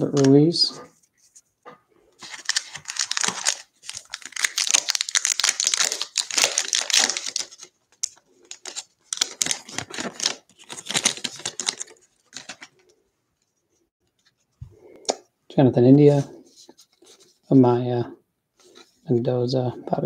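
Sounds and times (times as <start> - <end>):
plastic wrapper crinkling: 2.2 - 13.0.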